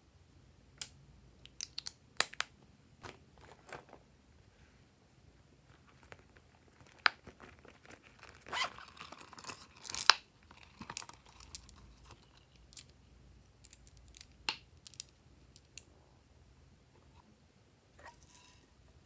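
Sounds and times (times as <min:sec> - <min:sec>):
zip purse rasping: 0:07.8 - 0:09.1.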